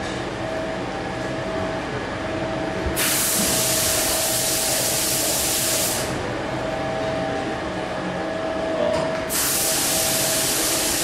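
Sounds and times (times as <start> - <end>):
factory machinery humming: 0.0 - 11.0
gas jet hissing: 3.0 - 6.1, 9.3 - 11.0.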